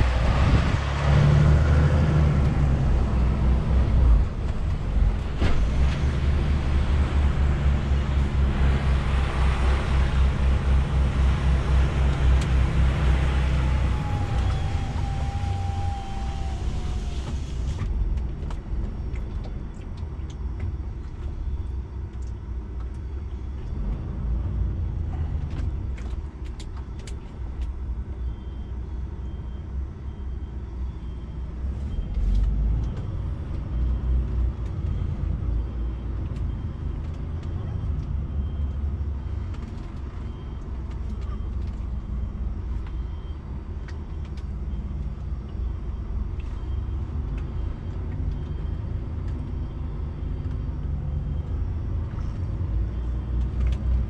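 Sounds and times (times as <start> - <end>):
diesel truck engine rumble: 0.0 - 54.0.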